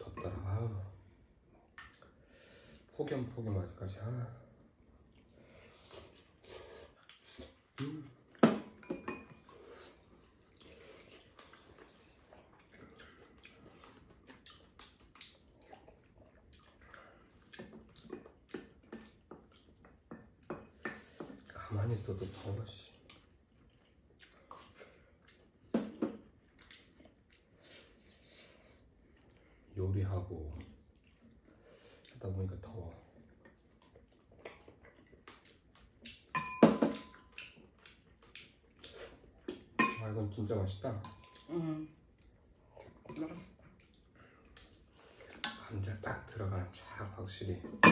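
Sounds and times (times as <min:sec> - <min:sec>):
slurping soup: 0:09.4 - 0:18.0.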